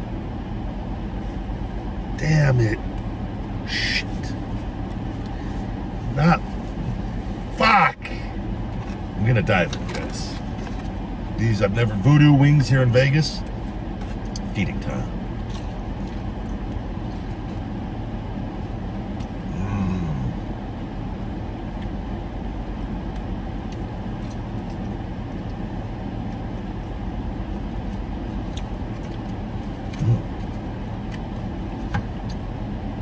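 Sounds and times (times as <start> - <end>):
car engine hum from cabin: 0.0 - 33.0
man chewing: 2.9 - 7.5, 13.4 - 32.8
man humming mmm: 19.4 - 20.5, 29.9 - 30.3.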